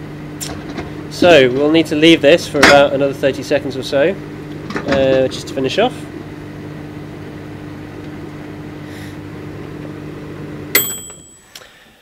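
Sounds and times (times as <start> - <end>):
microwave oven humming: 0.0 - 12.0
microwave timer bell ding: 10.7 - 11.8.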